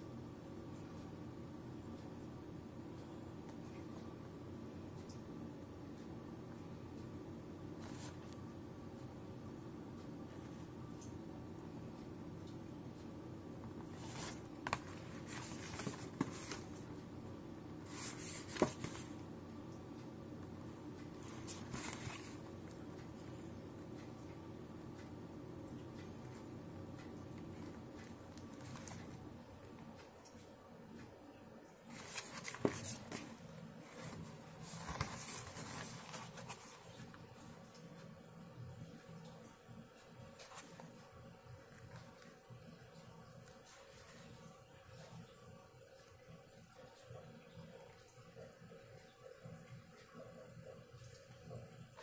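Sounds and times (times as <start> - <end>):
cardboard box rustling: 13.9 - 16.8, 17.9 - 19.2, 21.2 - 22.5, 31.9 - 36.9.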